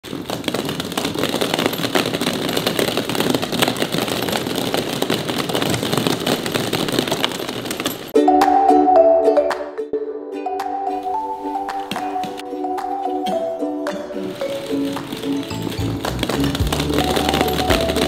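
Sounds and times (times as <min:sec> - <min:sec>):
plastic balls clattering: 0:00.0 - 0:08.2, 0:11.8 - 0:18.0
mallet percussion music: 0:08.1 - 0:18.0.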